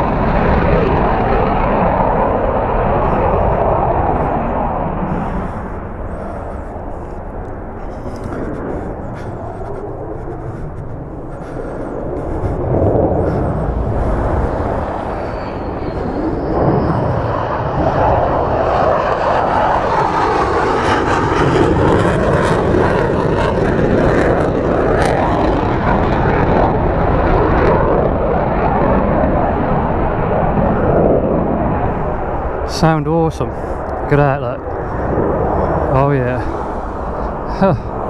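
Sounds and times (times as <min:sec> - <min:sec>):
fighter jet engines: 0:00.0 - 0:38.0.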